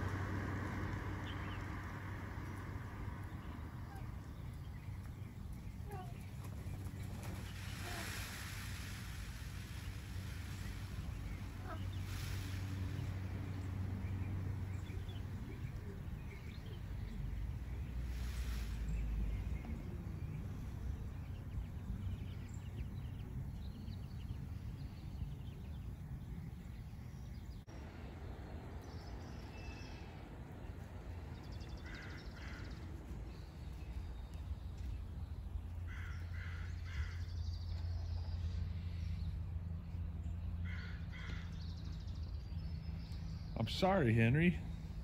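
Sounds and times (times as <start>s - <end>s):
low background hum: 0.0s - 45.0s
crows cawing: 31.8s - 32.8s, 35.9s - 37.3s, 40.6s - 41.6s.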